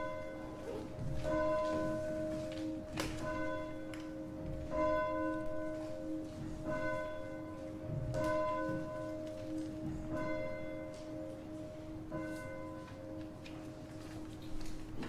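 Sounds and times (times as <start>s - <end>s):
church bell tolling: 0.0s - 15.0s.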